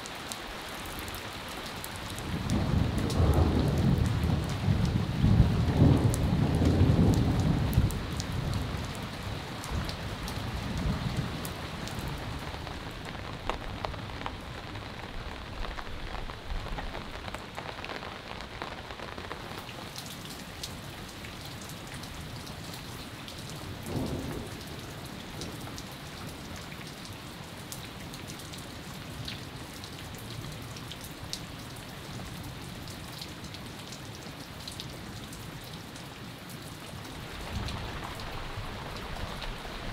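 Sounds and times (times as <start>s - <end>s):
steady rain falling: 0.0s - 39.9s
thunder rumbling: 2.2s - 19.7s, 37.1s - 39.9s.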